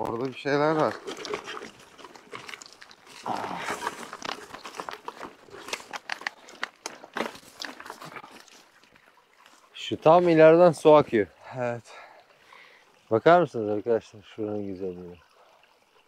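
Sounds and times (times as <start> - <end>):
gravel and dirt crunching: 0.0 - 8.8.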